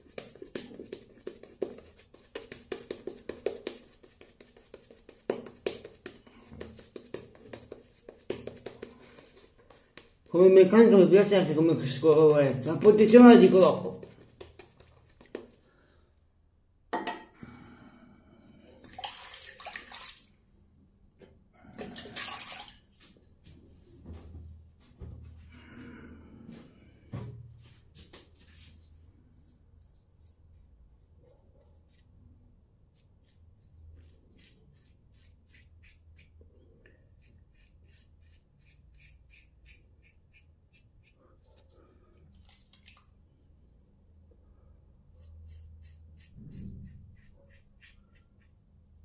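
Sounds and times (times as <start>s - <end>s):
razor scraping stubble: 37.2s - 41.2s, 45.2s - 48.5s.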